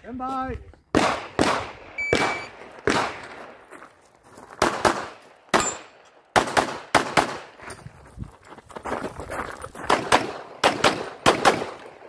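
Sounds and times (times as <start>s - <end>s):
pistol shots with echo: 0.9s - 3.5s, 4.6s - 7.5s, 9.9s - 12.0s.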